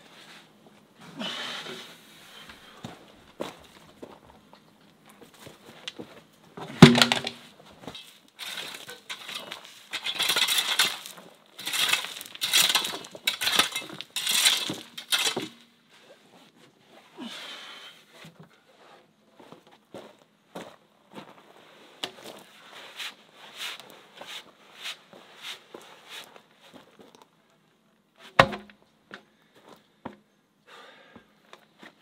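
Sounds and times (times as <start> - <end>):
timber beam thud on ground: 6.7 - 7.5, 28.4 - 28.8
rake scraping gritty soil: 6.7 - 15.8, 22.2 - 26.8.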